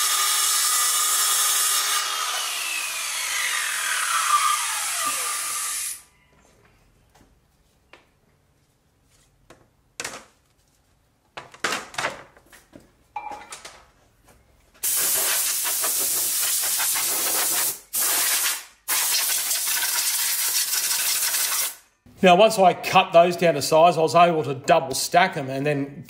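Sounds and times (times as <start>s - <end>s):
circular saw cutting panel: 0.0s - 6.0s
panels knocking and scraping: 11.3s - 14.0s.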